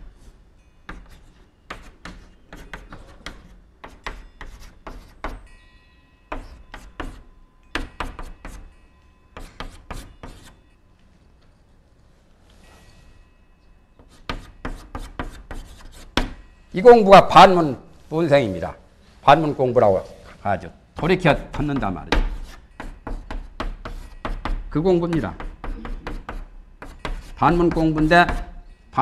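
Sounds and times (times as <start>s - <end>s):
chalk tapping and scraping on blackboard: 0.9s - 5.5s, 6.3s - 8.7s, 9.4s - 10.6s, 14.0s - 16.4s, 21.0s - 28.6s.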